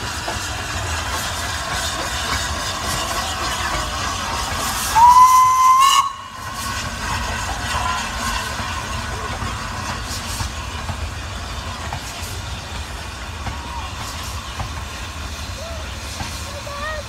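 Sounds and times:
steam hissing: 0.0s - 17.0s
steam locomotive whistle: 4.6s - 8.6s.

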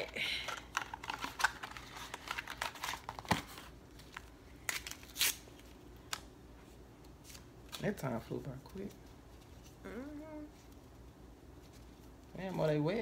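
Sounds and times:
box and wax strips crinkling: 0.0s - 6.3s.

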